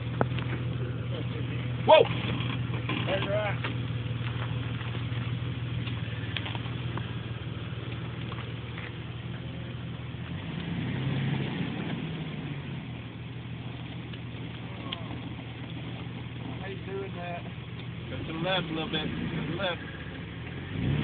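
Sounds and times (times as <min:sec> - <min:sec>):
car engine at low revs: 0:00.0 - 0:21.0.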